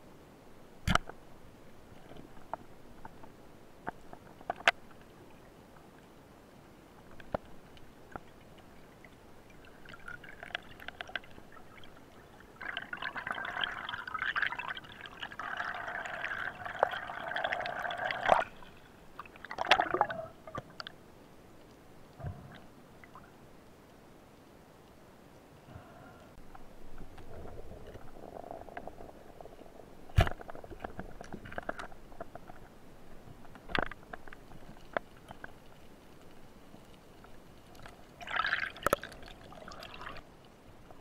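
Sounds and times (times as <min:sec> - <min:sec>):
underwater gurgling and bubbling: 0:08.2 - 0:20.8.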